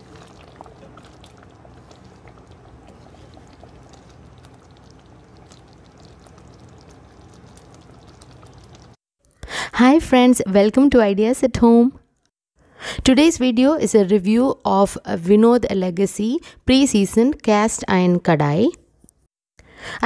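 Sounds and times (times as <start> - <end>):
gravy bubbles popping: 0.0 - 9.0.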